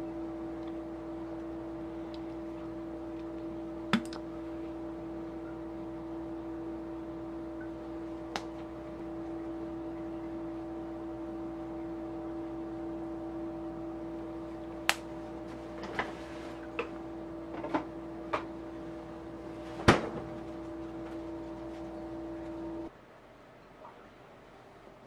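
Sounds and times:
machine hum with pitched tone: 0.0 - 23.0.

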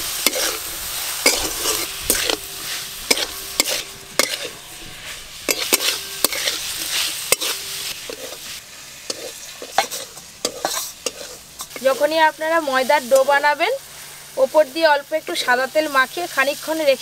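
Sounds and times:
meat sizzling in oil: 0.0 - 17.0
spatula clacking and scraping pan: 0.2 - 12.1.

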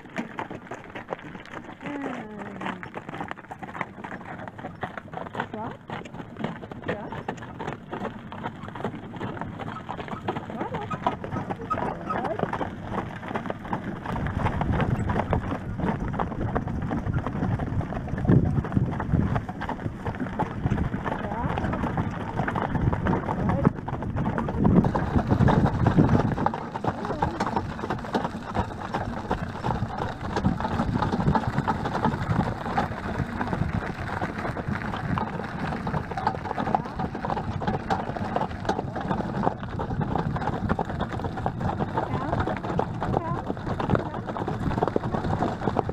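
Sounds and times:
carriage wheels rolling over leaves: 0.0 - 45.9
horse hooves clip-clopping: 0.0 - 45.9.

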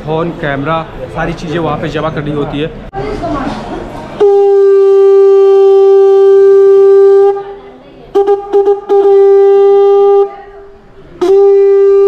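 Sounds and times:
conch shell horn blowing: 4.2 - 10.4, 11.2 - 12.0.

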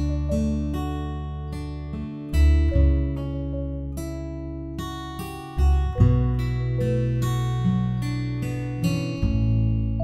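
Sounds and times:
plucked guitar notes: 0.0 - 10.0
held low bass: 5.6 - 10.0.

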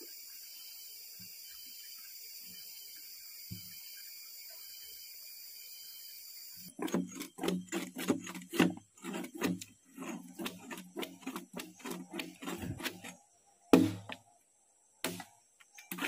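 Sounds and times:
machete chopping wood: 13.7 - 14.2, 15.0 - 15.3.

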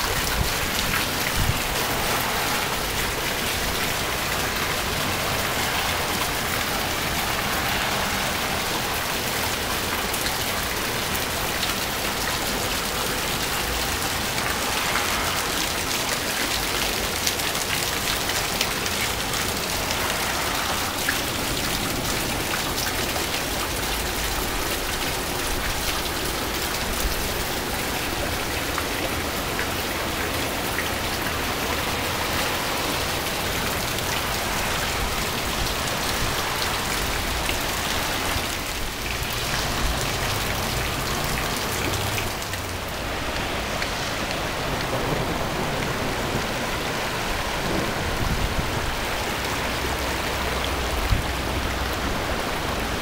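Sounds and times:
heavy rain on pavement: 0.0 - 53.0.

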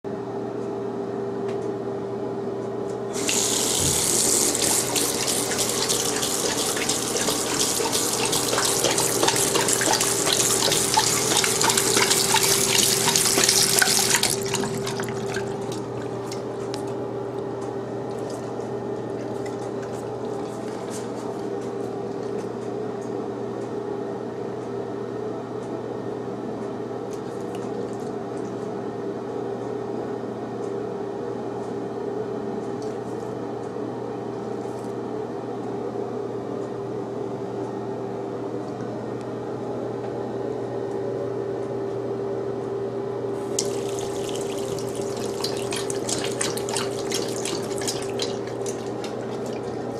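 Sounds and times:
faucet water running: 3.1 - 16.5, 43.4 - 49.9
dog lapping water: 3.2 - 16.8, 18.1 - 21.4, 27.2 - 28.6, 43.4 - 49.9.

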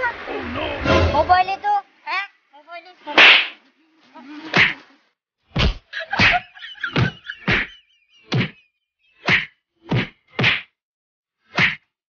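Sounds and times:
punch and slap blows: 3.2 - 3.6, 4.6 - 4.8, 5.5 - 7.7, 8.3 - 8.6, 9.3 - 10.8, 11.5 - 11.9.

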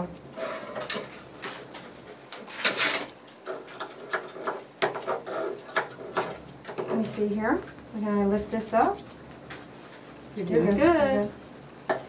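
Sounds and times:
grooming shears snipping fur: 8.3 - 11.5.

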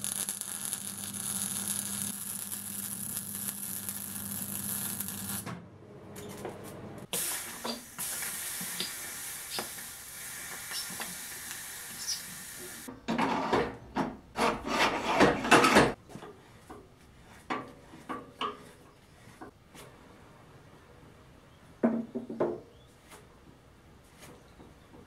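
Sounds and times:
steady hiss: 7.1 - 12.9
scraping and rasping on metal: 14.4 - 16.6.

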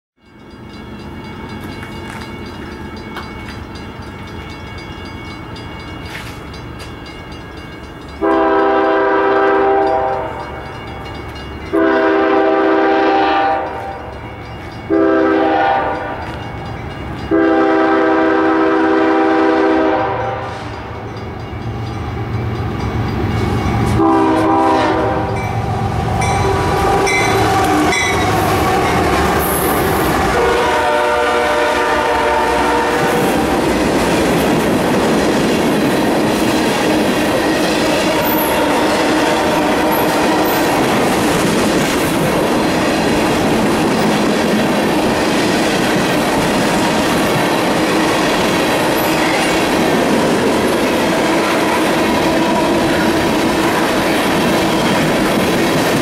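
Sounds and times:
train air horn: 8.2 - 10.6, 11.7 - 14.0, 14.9 - 16.3, 17.3 - 20.9, 24.0 - 25.4, 26.4 - 33.6, 37.8 - 40.7, 51.1 - 53.9
diesel locomotive rumble: 21.1 - 56.0.

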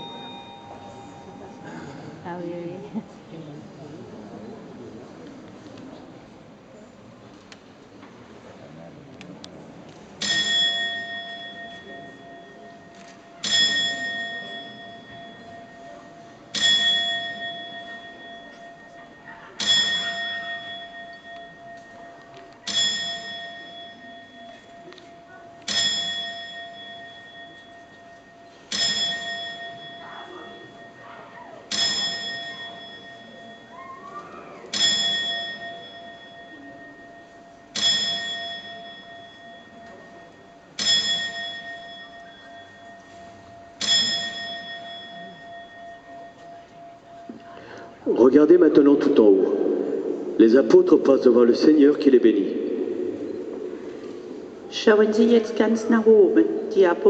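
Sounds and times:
clock bell striking: 0.0 - 3.3, 9.9 - 57.0.

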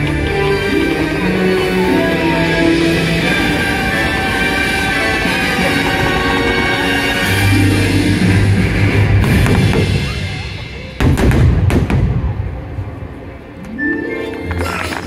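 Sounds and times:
fireworks bangs: 9.1 - 13.0.

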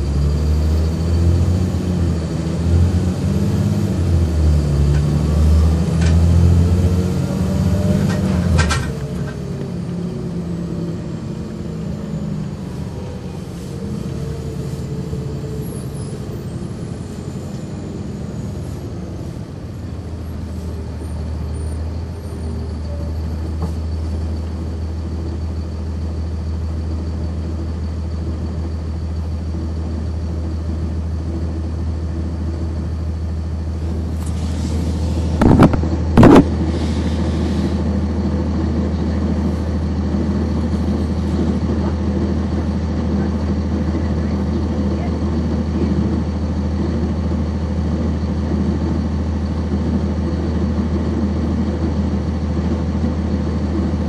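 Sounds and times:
bus diesel engine: 0.0 - 54.0
brief sharp noise: 35.4 - 37.1.

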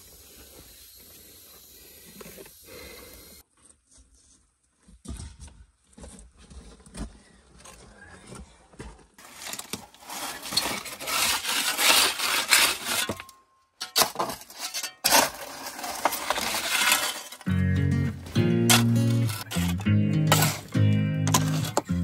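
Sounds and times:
shovel scraping gravelly soil: 9.2 - 22.0
stones clinking on shovel blade: 9.3 - 17.5, 18.6 - 22.0.

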